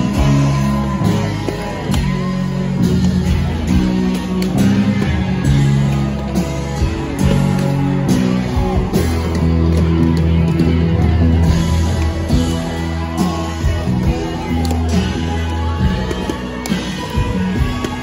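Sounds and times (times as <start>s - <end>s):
bass guitar: 0.0s - 18.0s
electric guitars: 0.0s - 18.0s
live rock band playing: 0.0s - 18.0s.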